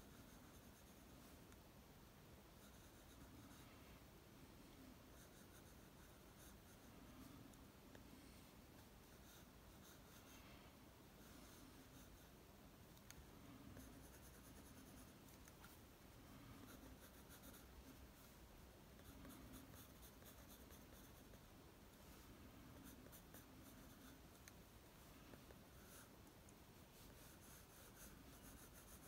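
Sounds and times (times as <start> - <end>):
pencil scratching on paper: 0.0 - 1.2, 2.6 - 3.7, 5.1 - 7.4, 9.0 - 10.4, 13.7 - 15.8, 16.5 - 18.3, 19.0 - 21.5, 22.7 - 24.5, 27.0 - 29.0.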